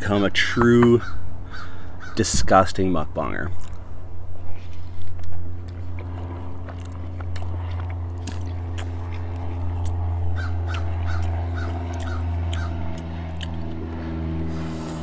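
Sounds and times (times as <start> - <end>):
crow cawing: 1.0 - 2.2, 10.3 - 13.0
person chewing food: 3.6 - 3.8, 4.5 - 15.0.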